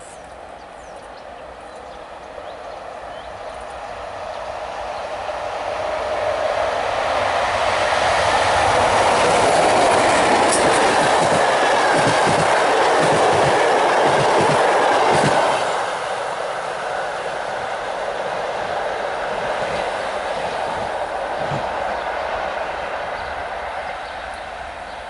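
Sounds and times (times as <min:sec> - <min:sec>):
train passing rush: 0:00.0 - 0:25.0
wheels clattering over rail joints: 0:09.2 - 0:15.6.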